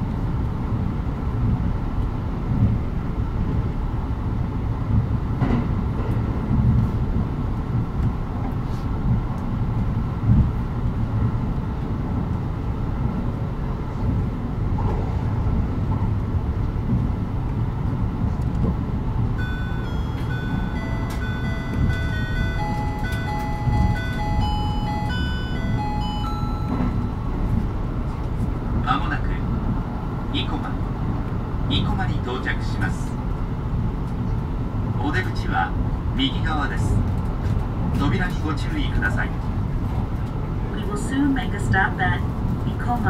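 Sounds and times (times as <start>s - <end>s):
train wheels rumbling: 0.0s - 43.0s
electronic chime melody: 19.4s - 27.2s.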